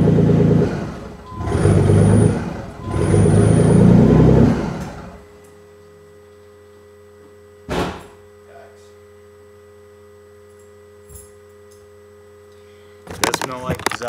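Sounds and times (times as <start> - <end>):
car engine revving: 0.0 - 5.3
faint steady hum: 0.0 - 14.0.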